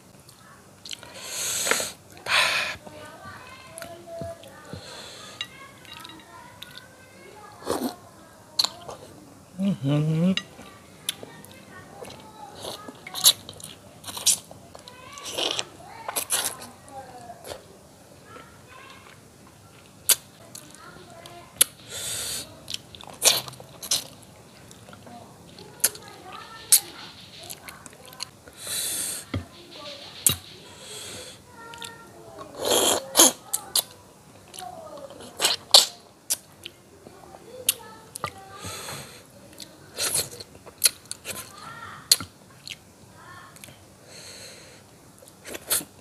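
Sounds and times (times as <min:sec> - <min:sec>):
chewing: 0:00.8 - 0:02.4, 0:03.7 - 0:07.0, 0:08.6 - 0:17.7, 0:22.6 - 0:28.6, 0:31.7 - 0:38.6, 0:39.5 - 0:42.8.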